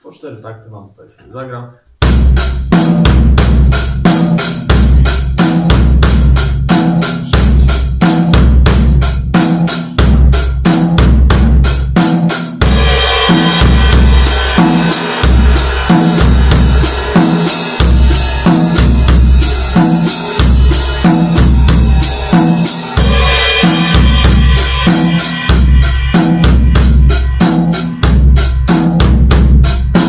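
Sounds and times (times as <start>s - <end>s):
rock drum beat: 2.0s - 30.0s
ringing cymbal wash: 12.7s - 28.6s.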